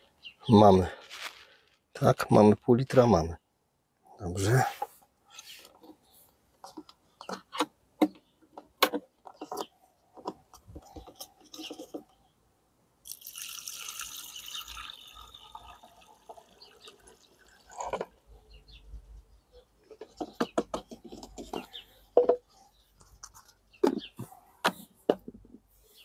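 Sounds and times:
liquid splashing pour: 0:13.1 - 0:18.0.

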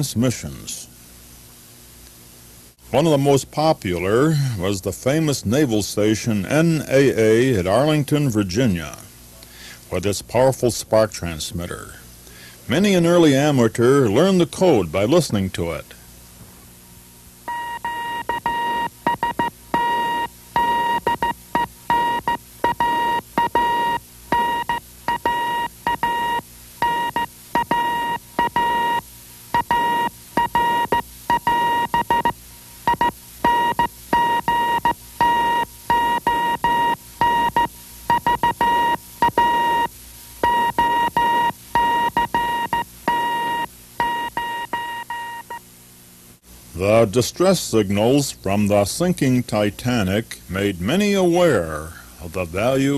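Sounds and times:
buzzing morse code tone: 0:17.5 - 0:45.6.

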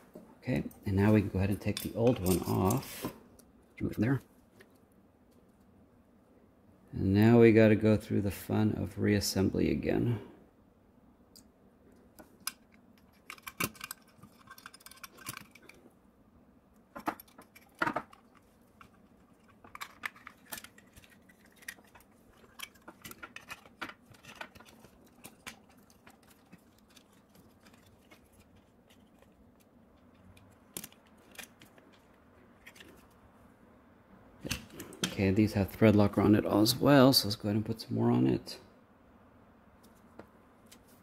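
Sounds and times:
metal parts clicking and tapping: 0:12.2 - 0:15.8, 0:16.9 - 0:33.0.

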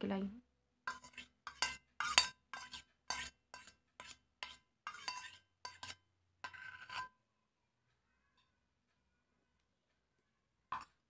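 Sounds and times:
metal spoon scraping metal bowl: 0:00.9 - 0:07.1.

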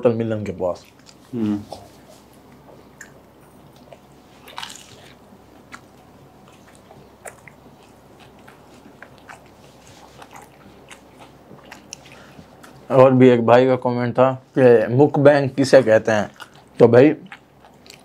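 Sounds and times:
people chewing: 0:00.2 - 0:13.0, 0:15.6 - 0:18.0
crisp pastry crunches: 0:04.4 - 0:05.9.

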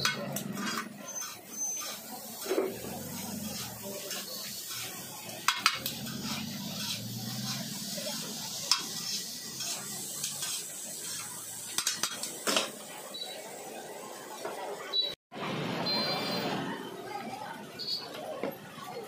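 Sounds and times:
metal spatula scraping griddle: 0:00.0 - 0:12.8
noodles sizzling: 0:00.0 - 0:13.8.

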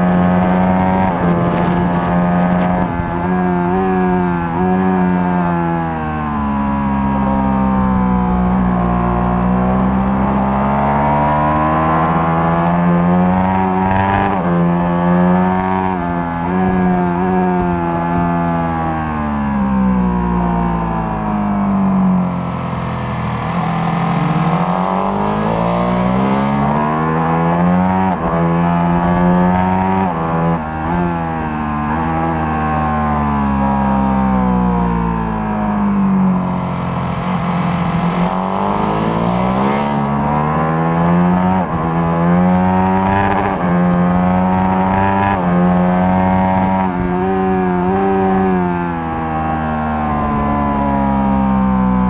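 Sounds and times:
motorcycle engine revving: 0:00.0 - 0:52.0.

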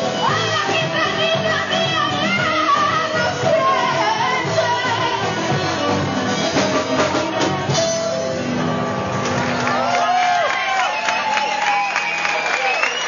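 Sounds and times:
woman singing: 0:00.0 - 0:07.9
live band playing: 0:00.0 - 0:13.0.

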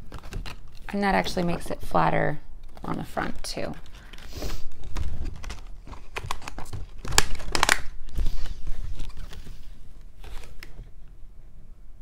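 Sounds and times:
sharp plastic crackles: 0:00.0 - 0:01.2, 0:02.6 - 0:10.8
plastic mesh crinkling and clicking: 0:02.6 - 0:09.6.

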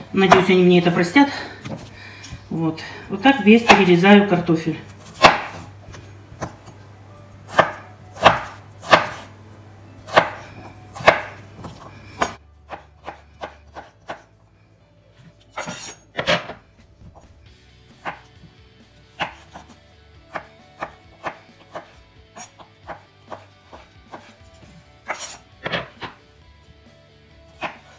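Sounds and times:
knife chopping on wooden board: 0:05.0 - 0:05.7, 0:07.5 - 0:09.3, 0:10.1 - 0:14.3, 0:18.0 - 0:18.3, 0:19.1 - 0:24.4, 0:25.1 - 0:26.2, 0:27.6 - 0:27.9.

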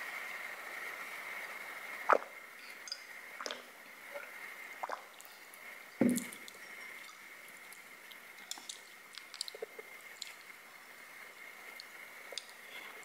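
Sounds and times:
wet mouth sounds eating: 0:02.1 - 0:02.3, 0:08.1 - 0:10.5
loud thud: 0:06.0 - 0:06.3.

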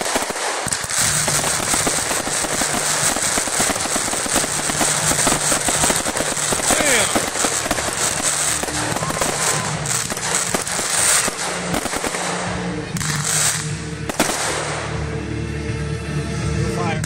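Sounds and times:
firework fountains hissing: 0:00.0 - 0:14.8
firework shells bursting: 0:00.0 - 0:14.9
loud recorded music: 0:04.2 - 0:17.0.

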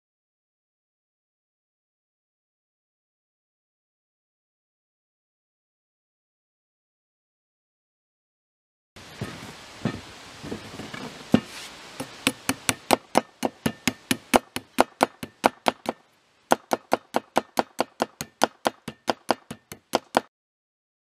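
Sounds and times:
knife chopping wood: 0:11.3 - 0:20.3.

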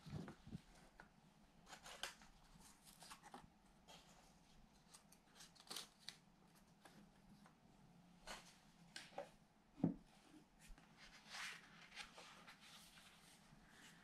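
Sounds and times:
paper crinkling and rustling: 0:00.0 - 0:07.6, 0:10.7 - 0:14.0.

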